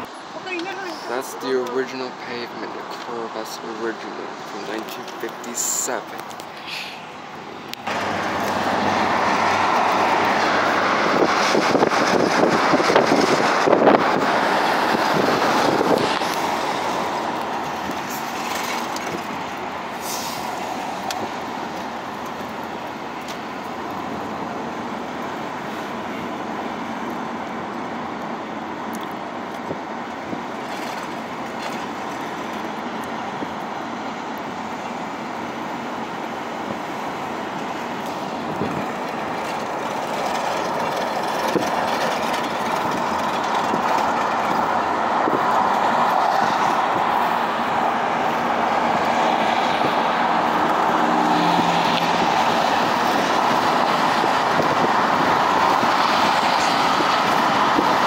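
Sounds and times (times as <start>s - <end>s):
car road and tyre noise: 0.0s - 58.0s.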